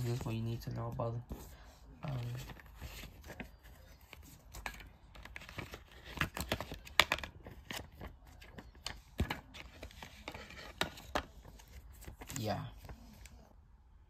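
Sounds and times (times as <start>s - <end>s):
paper cards rustling: 0.0s - 13.5s
cards tapping and clicking: 2.4s - 13.3s.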